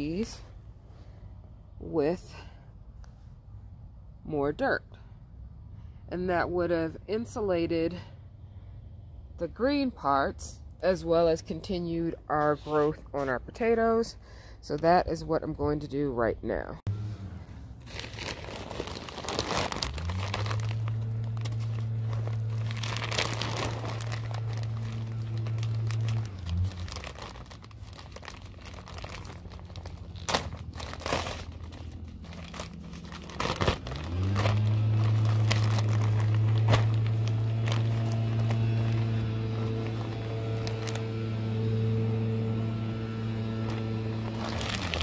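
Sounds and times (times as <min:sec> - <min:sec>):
low machine hum: 0:16.9 - 0:45.0
plastic bag crinkling: 0:17.8 - 0:41.4, 0:43.6 - 0:45.0.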